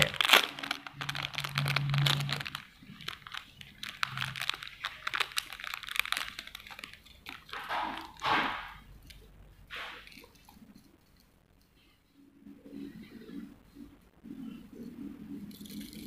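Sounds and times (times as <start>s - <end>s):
plastic packet crinkling: 0.0s - 10.8s.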